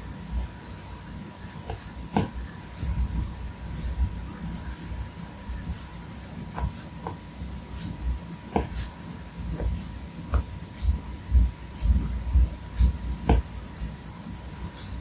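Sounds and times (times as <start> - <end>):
dull low thumps of hand on tablet: 1.7 - 4.2, 6.5 - 7.2, 7.8 - 14.0
stylus tapping on glass screen: 12.8 - 13.9.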